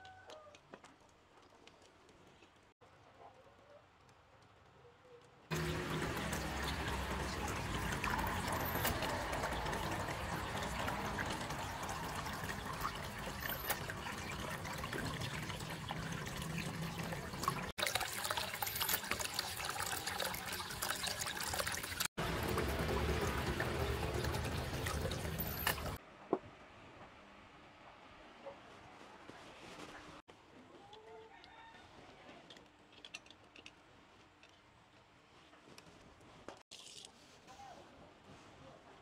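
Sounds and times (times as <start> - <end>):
water running and splashing: 5.5 - 26.0.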